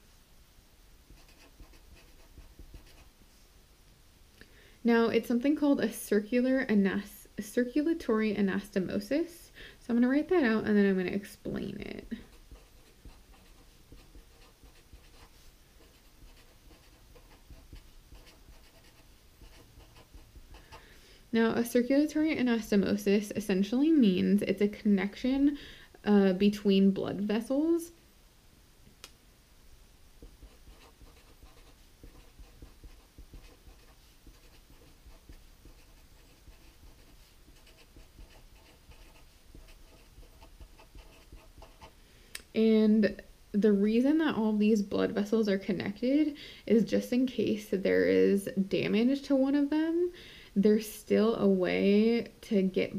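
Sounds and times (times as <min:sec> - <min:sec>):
marker scratching on paper: 0:01.1 - 0:03.2, 0:12.1 - 0:20.8, 0:30.2 - 0:41.9.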